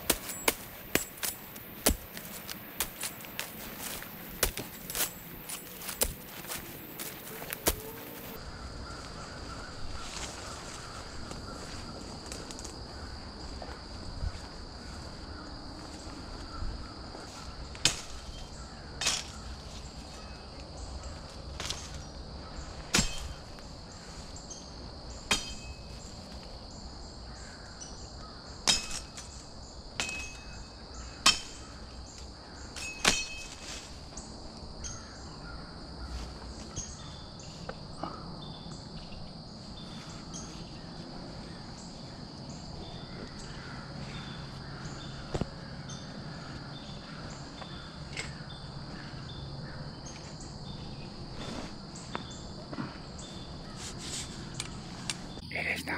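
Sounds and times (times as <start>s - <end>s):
machete chopping brush: 0.0s - 8.4s, 17.8s - 18.3s, 19.0s - 19.4s, 22.9s - 23.5s, 25.3s - 25.7s, 32.8s - 33.9s
insect chorus: 0.0s - 55.9s.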